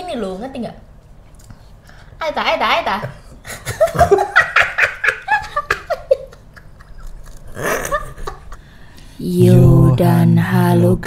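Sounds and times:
man and woman laughing: 3.4s - 8.7s.

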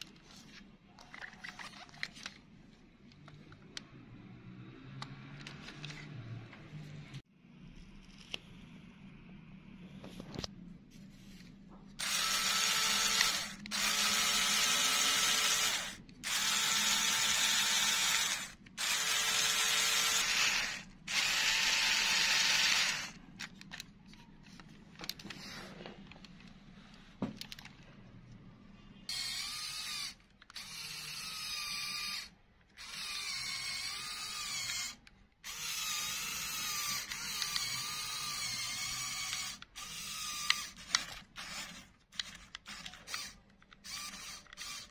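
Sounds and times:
electric motor whirring through gears: 12.0s - 23.2s, 29.1s - 44.9s.

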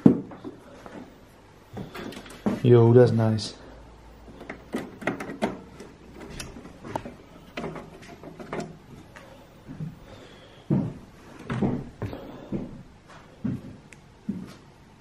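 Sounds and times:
belongings knocking and rustling: 4.2s - 10.1s.

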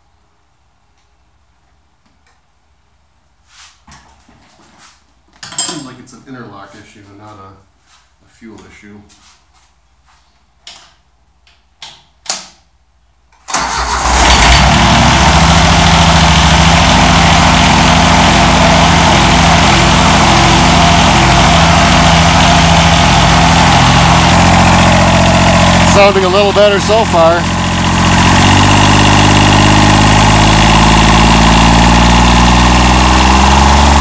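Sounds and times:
diesel engine starting and running: 13.5s - 34.0s.

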